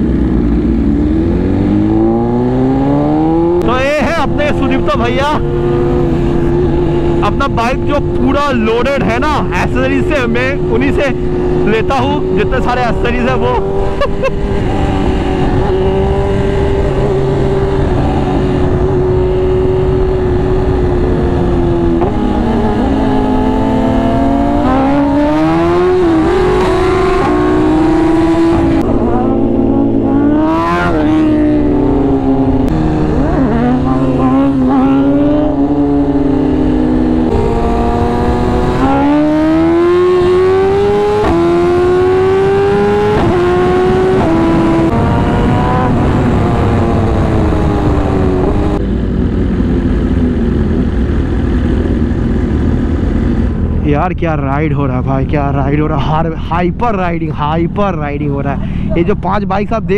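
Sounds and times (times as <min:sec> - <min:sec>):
motorcycle engine accelerating: 0:00.0 - 0:59.9
wind noise: 0:00.0 - 0:59.9.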